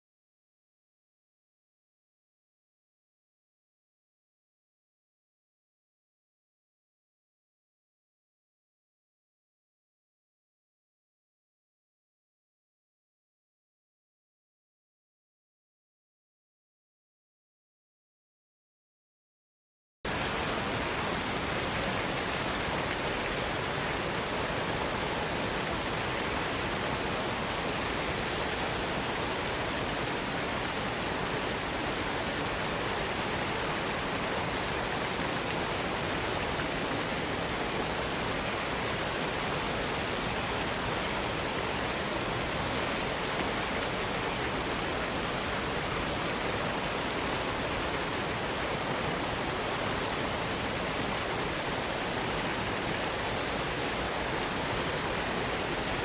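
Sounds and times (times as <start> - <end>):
waterfall rushing: 20.1 - 56.0.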